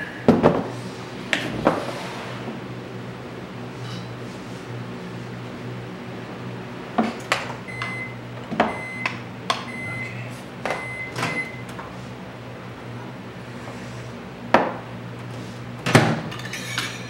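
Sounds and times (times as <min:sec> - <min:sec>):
microwave hum: 0:00.0 - 0:17.0
microwave beeps: 0:07.6 - 0:11.8.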